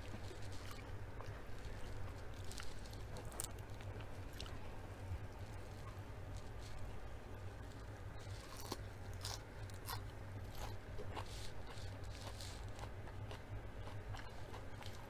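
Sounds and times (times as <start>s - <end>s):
chewing crisp salad leaves: 0.0s - 15.0s
low steady hum: 0.0s - 15.0s.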